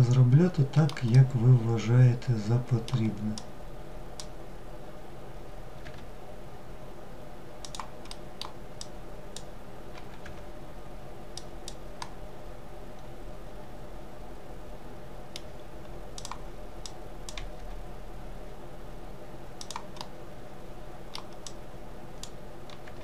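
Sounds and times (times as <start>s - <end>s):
steady low hum: 0.0s - 23.0s
keyboard and mouse clicks: 0.8s - 1.3s, 2.8s - 3.5s, 5.8s - 6.1s, 7.6s - 10.5s, 16.2s - 17.8s, 19.6s - 20.1s, 21.1s - 21.6s, 22.2s - 23.0s.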